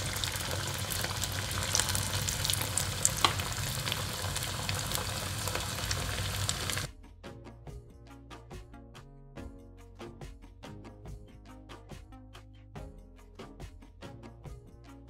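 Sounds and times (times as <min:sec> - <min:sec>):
oil sizzling and crackling: 0:00.0 - 0:06.9.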